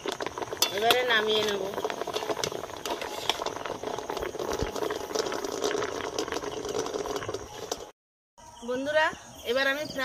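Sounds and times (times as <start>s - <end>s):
water boiling hard: 0.0s - 8.0s.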